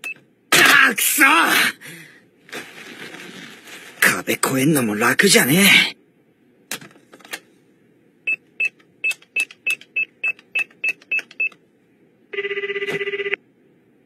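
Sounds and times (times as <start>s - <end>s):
telephone keys beeping: 8.3s - 11.6s
buzzing ringback tone: 12.4s - 13.4s.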